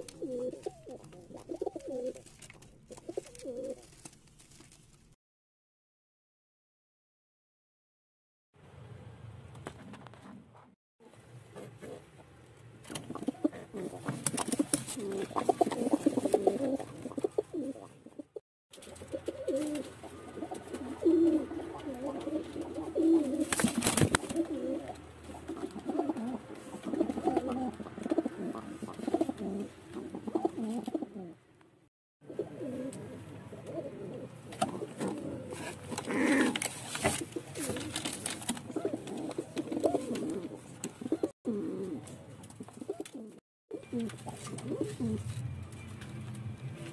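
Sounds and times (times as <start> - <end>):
pigeons cooing: 0.0 - 2.2, 13.0 - 31.4, 32.2 - 45.3.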